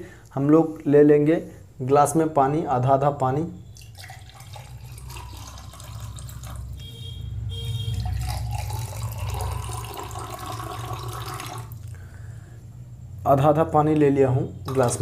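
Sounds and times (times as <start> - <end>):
water pouring into glass: 3.8 - 6.9, 7.9 - 11.9, 14.6 - 15.0.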